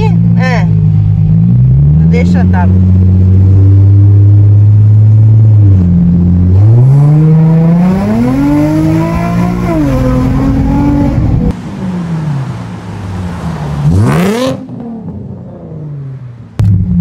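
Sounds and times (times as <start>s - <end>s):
car engine revving from inside: 1.4s - 11.5s.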